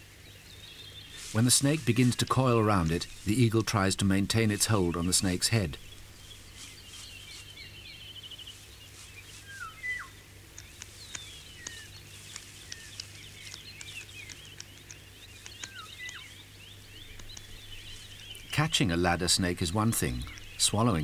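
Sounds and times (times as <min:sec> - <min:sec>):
low steady hum: 0:00.0 - 0:21.0
small birds chirping: 0:00.0 - 0:21.0
light ticks: 0:10.5 - 0:18.5.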